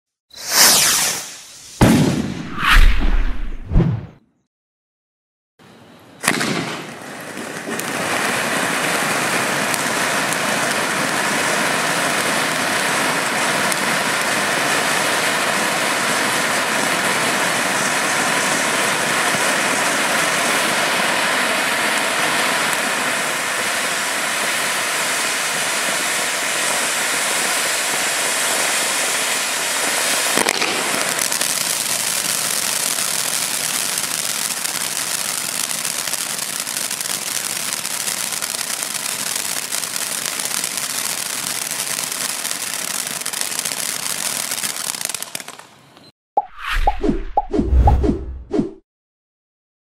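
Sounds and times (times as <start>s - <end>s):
firework fountain hissing: 0.3s - 2.3s, 6.2s - 45.8s
firework bang: 0.5s - 4.2s, 6.2s - 8.2s, 30.3s - 31.6s.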